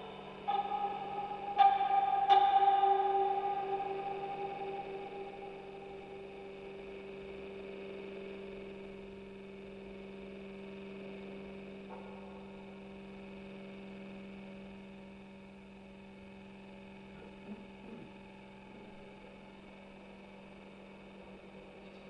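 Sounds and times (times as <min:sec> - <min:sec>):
faint high tones: 0:00.0 - 0:10.4
steady electronic tone: 0:00.0 - 0:14.6
low electronic hum: 0:00.0 - 0:22.0.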